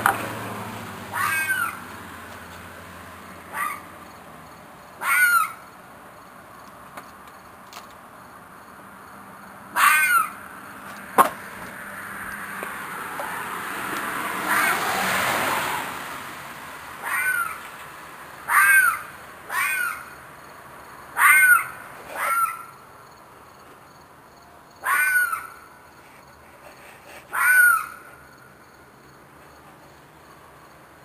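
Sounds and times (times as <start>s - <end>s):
animal screeching cries: 1.1s - 1.8s, 3.5s - 3.9s, 5.0s - 5.6s, 9.8s - 10.4s, 14.4s - 14.9s, 17.0s - 17.6s, 18.5s - 20.1s, 21.2s - 22.7s, 24.8s - 25.7s, 27.2s - 28.2s.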